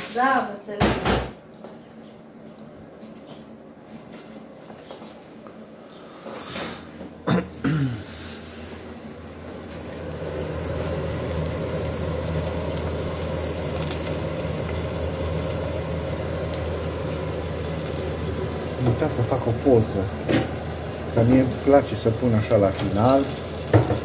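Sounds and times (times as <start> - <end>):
steady machine hum: 2.1 - 24.0.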